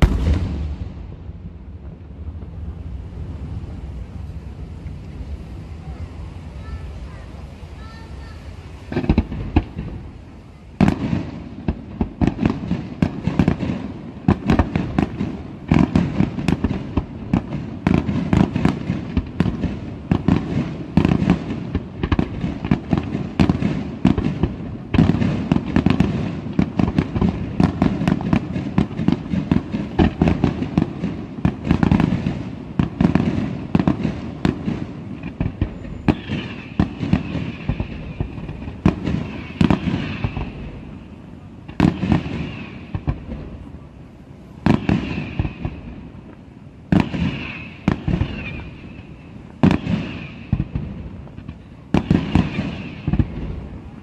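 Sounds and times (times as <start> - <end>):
fireworks bangs: 0.0 - 54.0
high firework whistle: 35.5 - 40.7, 44.6 - 45.8, 46.9 - 50.7, 52.0 - 53.2.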